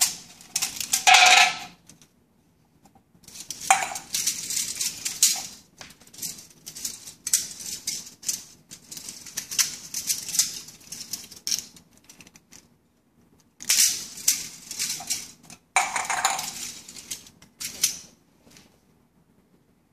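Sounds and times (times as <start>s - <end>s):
aluminium can parts rattling: 0.0s - 1.8s, 3.3s - 12.4s, 13.6s - 18.0s.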